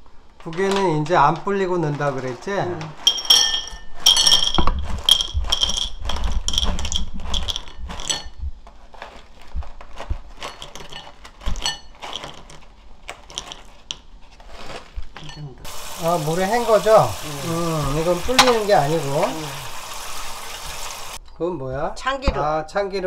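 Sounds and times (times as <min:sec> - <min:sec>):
dried mussels clattering into bowl: 0:00.4 - 0:08.4, 0:09.2 - 0:14.1, 0:18.0 - 0:19.6.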